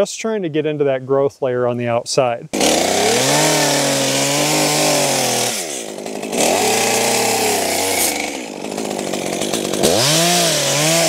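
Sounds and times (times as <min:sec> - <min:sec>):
chainsaw cutting revving: 0:02.5 - 0:11.0.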